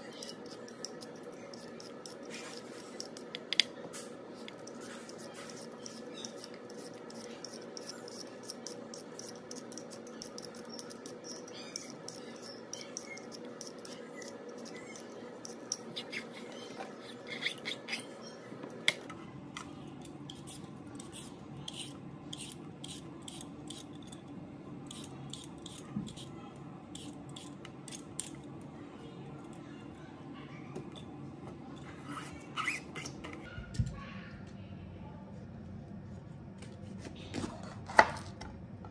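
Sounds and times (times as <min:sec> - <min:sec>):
vegetable peeler scraping: 0:00.0 - 0:03.4, 0:04.4 - 0:18.2, 0:20.3 - 0:23.9, 0:24.9 - 0:26.3.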